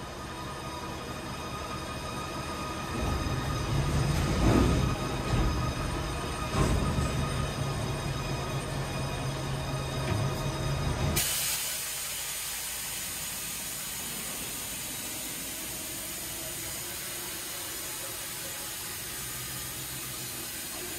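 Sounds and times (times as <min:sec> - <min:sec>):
steady hiss: 0:11.2 - 0:20.9.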